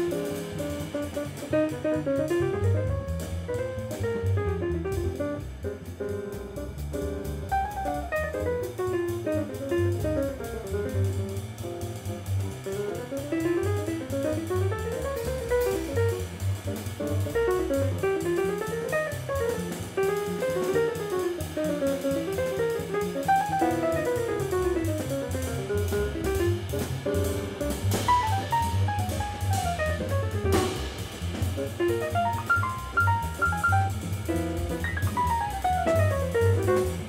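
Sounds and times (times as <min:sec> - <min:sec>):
drum kit ride cymbal: 0:00.0 - 0:37.0
jazz quintet playing up-tempo: 0:00.0 - 0:37.0
walking double bass: 0:00.0 - 0:37.0.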